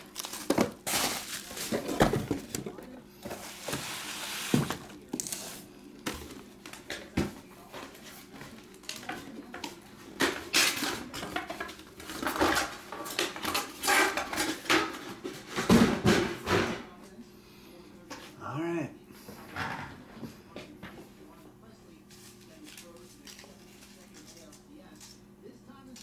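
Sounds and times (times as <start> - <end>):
bubble wrap and plastic crinkling: 0.0 - 2.8.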